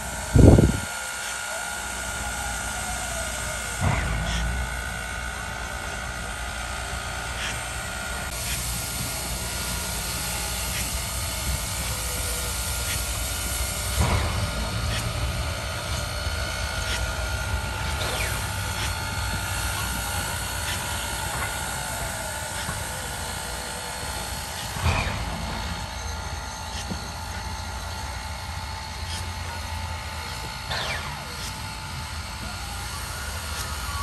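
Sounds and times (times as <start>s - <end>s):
engine clanks and clicks: 0.0s - 34.0s
hiss of steam: 0.0s - 34.0s.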